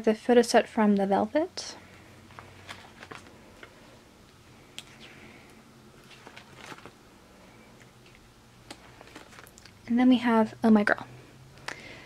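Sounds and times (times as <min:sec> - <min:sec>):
plastic sleeves rustling and clicking: 0:02.2 - 0:03.8, 0:04.7 - 0:07.0, 0:07.8 - 0:09.8.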